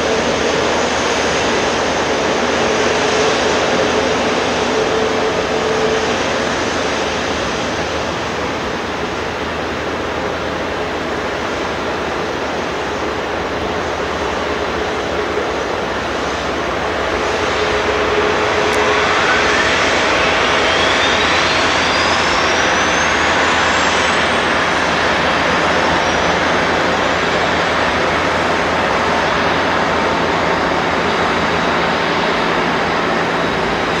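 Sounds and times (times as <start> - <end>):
jet engine spooling up: 0.0 - 34.0
second rising whine: 16.3 - 34.0.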